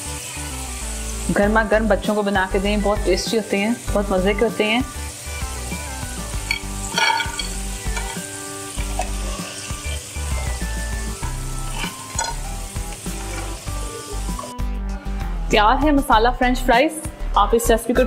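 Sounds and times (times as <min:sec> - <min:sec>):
fries sizzling in hot oil: 0:00.0 - 0:14.6
soft background music: 0:00.0 - 0:18.0
mesh skimmer scraping through oil: 0:06.5 - 0:10.6, 0:11.6 - 0:12.4, 0:13.0 - 0:13.8.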